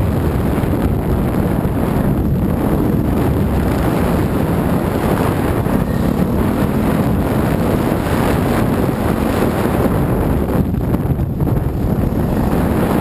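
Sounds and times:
dirt bike engine running: 0.0 - 13.0
wind buffeting on microphone: 0.0 - 13.0.

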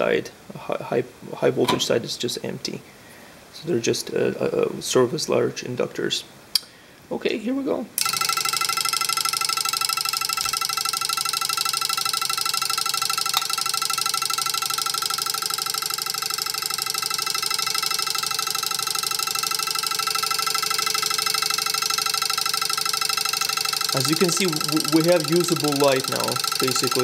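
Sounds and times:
vibrating switch buzzing: 8.0 - 27.0.

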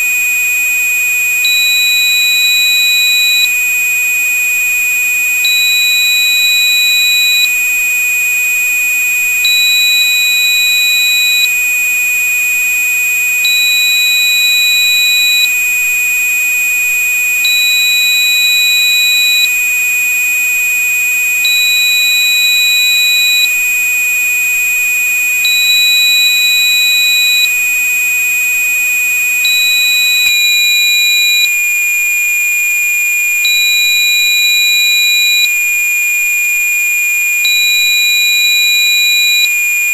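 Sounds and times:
high beep: 29.5 - 31.5, 33.5 - 35.5, 37.5 - 39.5.

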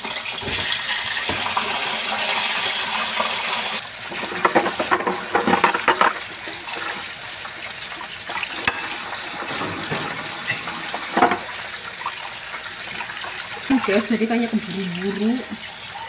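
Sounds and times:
things clattering in sink: 0.0 - 2.1, 4.0 - 15.6
tap running into sink: 0.4 - 1.9, 4.1 - 7.1, 8.3 - 11.7.

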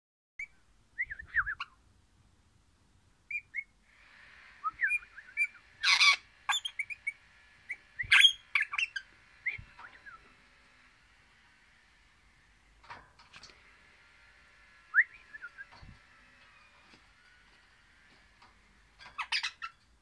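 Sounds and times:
parrot chirping and whistling: 4.7 - 10.2
parrot squawks: 5.4 - 9.0, 19.2 - 19.8.

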